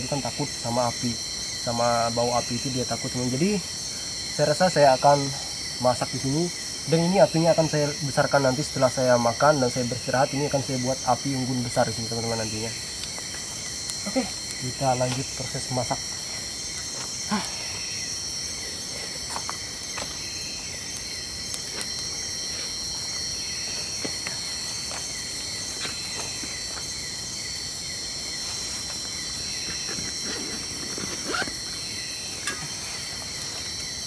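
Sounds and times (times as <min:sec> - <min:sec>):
crickets trilling: 0:00.0 - 0:34.0.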